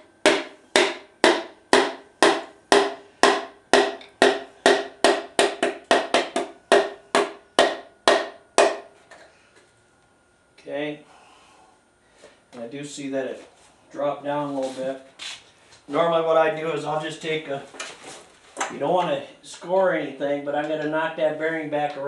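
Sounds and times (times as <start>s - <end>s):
wooden hammer knocking on metal: 0.2s - 8.9s.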